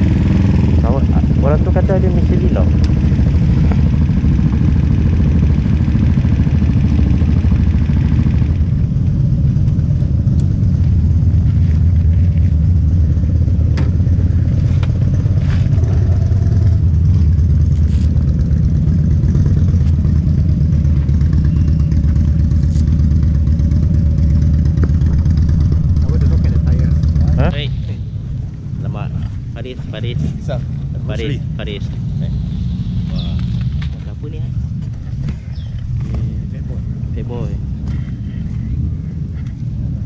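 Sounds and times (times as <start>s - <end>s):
motorcycle engines idling: 0.0s - 40.0s.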